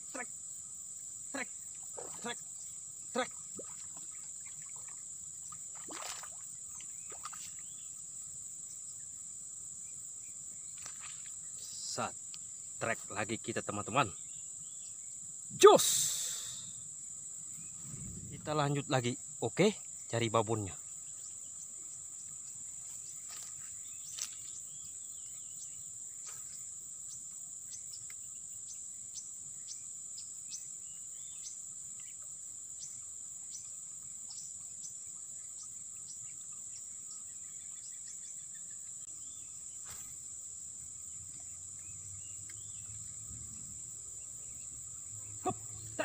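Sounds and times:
high-pitched insect drone: 10.2 - 31.6.

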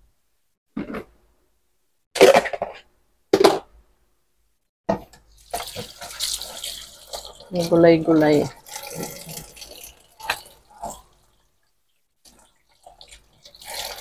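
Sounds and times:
plastic containers clattering: 2.2 - 3.7.

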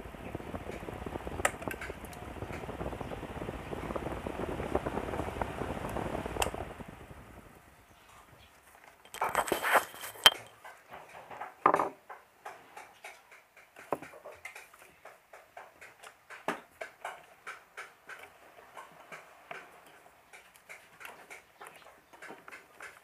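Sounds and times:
light ticking: 0.0 - 7.6
stand fan running: 0.0 - 8.4
loud clicks: 0.2 - 6.8.

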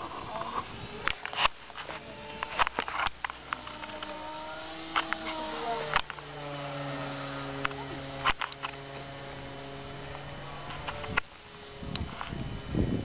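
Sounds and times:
model plane motor humming: 0.0 - 13.0
sharp clicks: 0.6 - 11.3.

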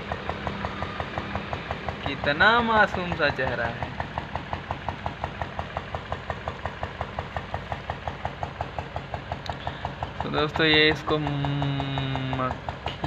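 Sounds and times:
engine idling with knock: 0.0 - 13.0.

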